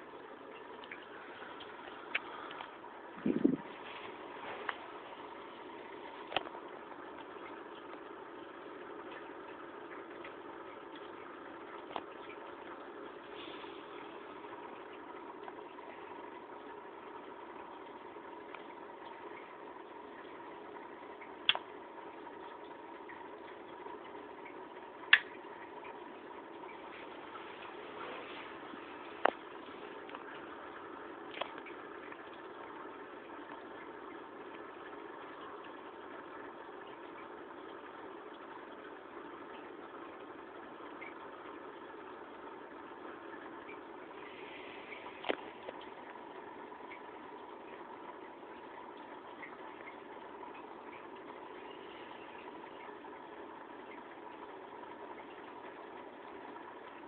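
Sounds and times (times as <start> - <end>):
aquarium pump humming: 0.0 - 57.0
faint water washing: 0.0 - 57.0.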